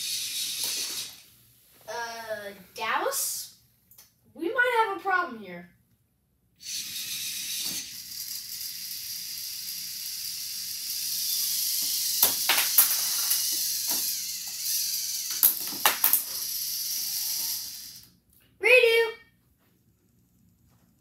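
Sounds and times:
robot motors whirring: 0:00.0 - 0:01.2, 0:06.6 - 0:18.1.

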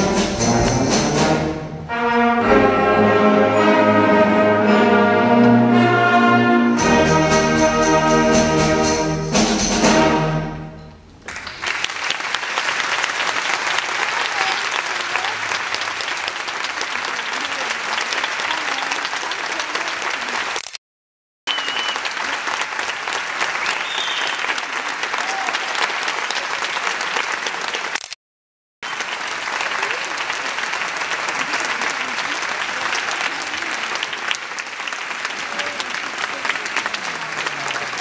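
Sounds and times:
concert band chord: 0:00.0 - 0:11.0
audience applause: 0:11.2 - 0:20.7, 0:21.5 - 0:28.1, 0:28.8 - 0:38.0.

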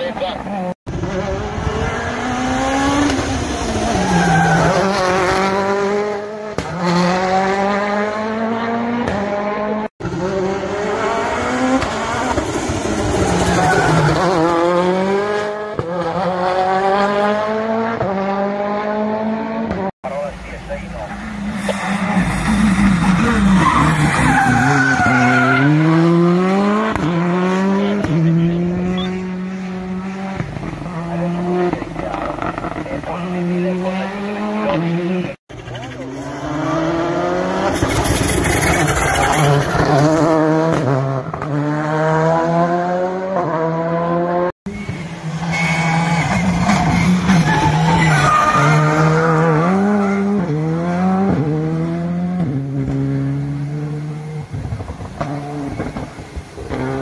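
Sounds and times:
rally car engines revving: 0:00.0 - 0:57.0
tyre squeal: 0:44.7 - 0:50.3.

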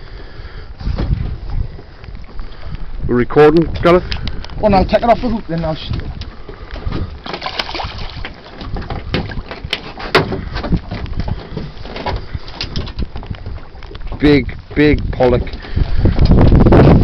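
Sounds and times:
water against boat side: 0:00.0 - 0:17.0
wind buffeting microphone: 0:00.0 - 0:17.0
sharp clicks and knocks: 0:08.2 - 0:14.3.

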